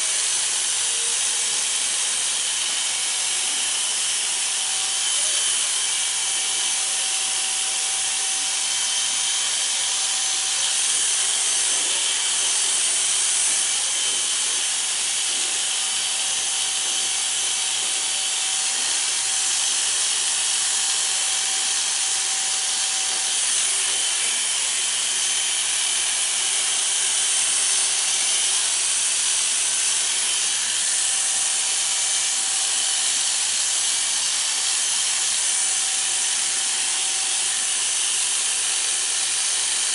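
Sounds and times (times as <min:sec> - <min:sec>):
electric hair clippers running: 0:00.0 - 0:39.9.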